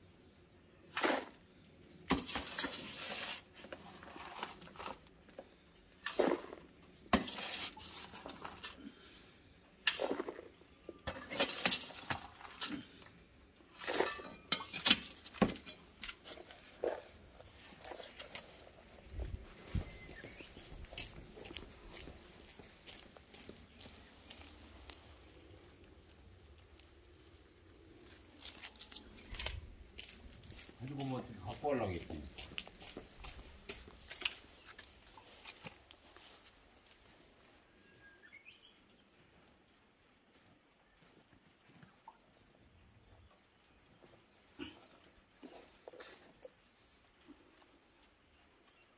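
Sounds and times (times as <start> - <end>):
hand tool digging dry soil: 0.9 - 1.4, 2.1 - 5.2, 6.0 - 9.0, 9.8 - 13.0, 13.7 - 26.1
gloved hands rubbing soil: 2.4 - 5.2, 16.1 - 37.6.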